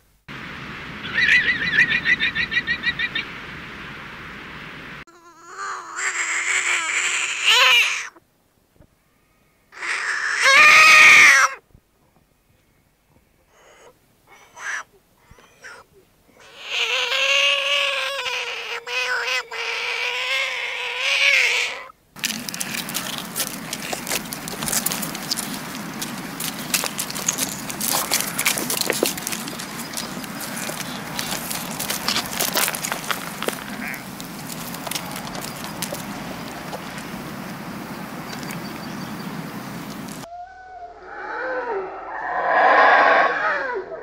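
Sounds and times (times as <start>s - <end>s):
frog calling: 1.0s - 3.4s, 9.7s - 11.6s, 13.5s - 40.3s
rustling crackle: 22.2s - 40.3s.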